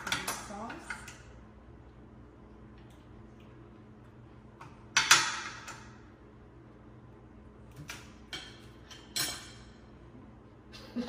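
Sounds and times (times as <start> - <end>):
forks and shells clattering on plates: 0.0 - 1.2, 7.8 - 9.8
faint steady hum: 0.0 - 11.0.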